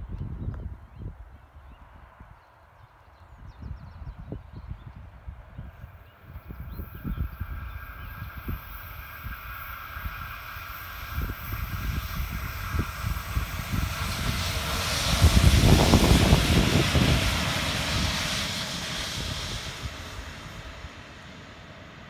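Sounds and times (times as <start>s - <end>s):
train wheels rumbling on rail: 5.8s - 22.0s.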